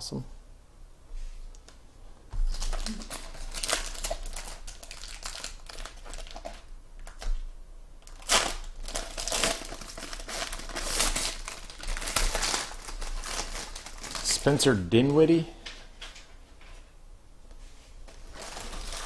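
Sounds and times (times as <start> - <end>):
foil wrappers crinkling: 2.4 - 7.3, 8.0 - 15.4, 18.1 - 19.0.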